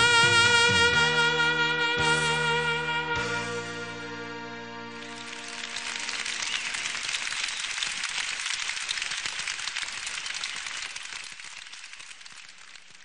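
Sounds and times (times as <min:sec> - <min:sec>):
crowd applause: 0:04.9 - 0:13.0.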